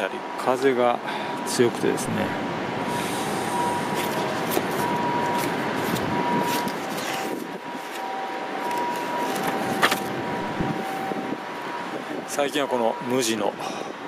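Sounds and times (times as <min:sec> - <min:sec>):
city background rush: 0:00.0 - 0:14.0
paper pages turning: 0:05.4 - 0:08.0, 0:08.6 - 0:10.2
wind on microphone: 0:10.1 - 0:12.3.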